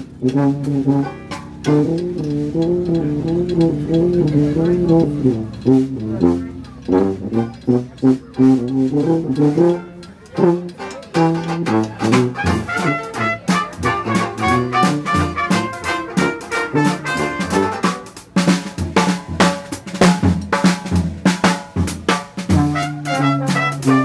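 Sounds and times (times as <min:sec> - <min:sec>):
jazz band playing: 0:00.0 - 0:24.0
drum kit hits: 0:00.2 - 0:02.8, 0:12.1 - 0:24.0.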